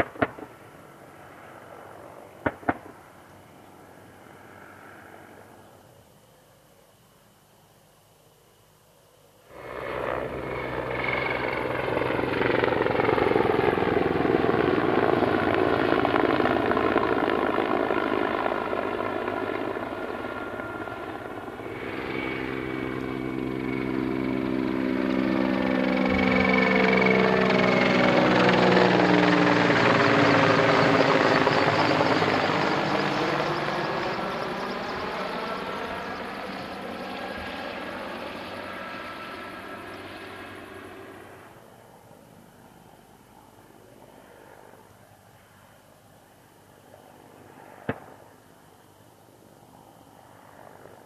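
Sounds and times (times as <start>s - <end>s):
helicopter flying close: 0.0s - 6.0s, 9.5s - 45.8s, 49.4s - 51.0s.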